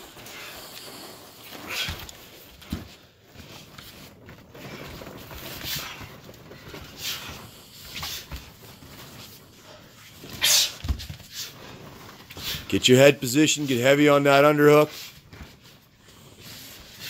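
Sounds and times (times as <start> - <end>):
hard breathing: 0.0 - 3.5, 4.5 - 12.7
bodies and feet scuffling: 0.0 - 17.0.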